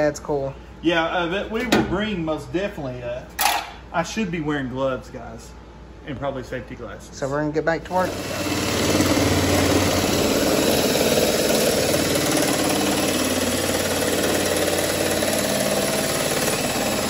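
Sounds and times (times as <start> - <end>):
power shear cutting steel: 7.9 - 17.0.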